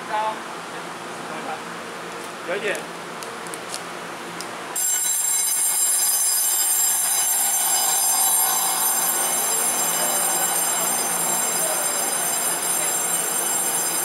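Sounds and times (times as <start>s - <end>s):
electric train rolling: 4.8s - 14.0s
high-pitched ringing: 4.8s - 14.0s.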